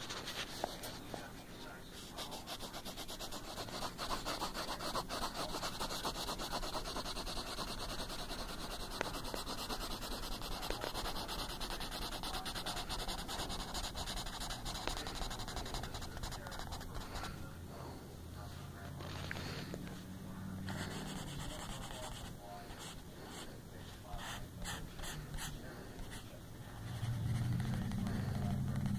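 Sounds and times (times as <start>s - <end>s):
pencil scribbling on paper: 0.0s - 17.3s, 20.7s - 23.5s, 24.1s - 27.1s.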